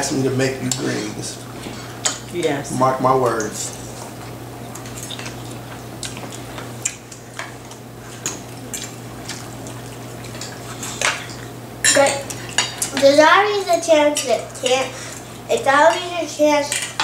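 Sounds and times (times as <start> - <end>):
steady low hum: 0.0 - 17.0
wet chewing and lip-smacking: 4.0 - 11.5
forks clicking against plates: 10.2 - 14.9, 15.9 - 17.0.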